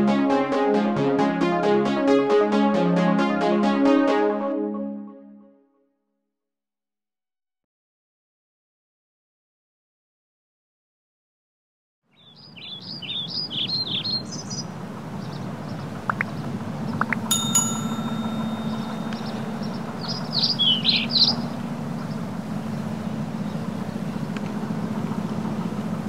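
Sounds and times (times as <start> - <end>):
birds chirping: 12.1 - 24.6
bell-like notification ding: 17.3 - 20.1.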